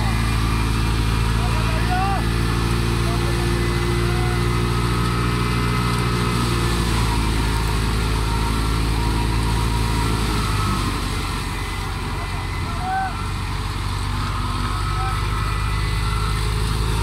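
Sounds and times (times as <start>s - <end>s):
thresher engine drone: 0.0s - 17.0s.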